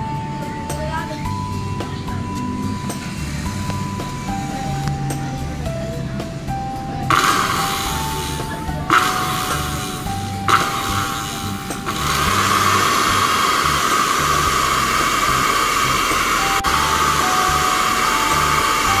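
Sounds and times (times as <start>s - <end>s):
background music with low beat: 0.0s - 19.0s
blender motor whirring: 7.1s - 19.0s.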